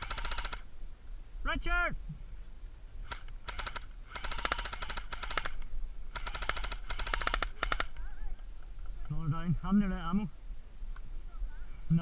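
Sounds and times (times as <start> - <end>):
airsoft rifle firing bursts: 0.0 - 0.7, 3.0 - 8.0.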